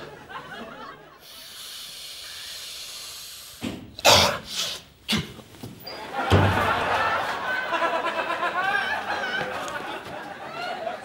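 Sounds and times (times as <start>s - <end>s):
man snorting through a straw: 1.2s - 5.4s.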